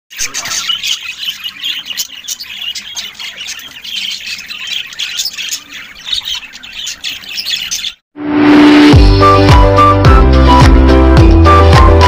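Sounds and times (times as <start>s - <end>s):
budgerigars chirping and squawking: 0.1s - 8.0s.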